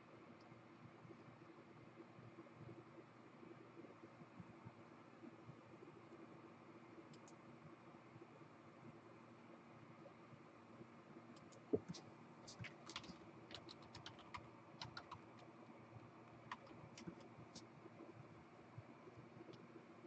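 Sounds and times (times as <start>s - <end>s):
typing on keyboard: 11.4s - 15.6s, 16.3s - 17.7s.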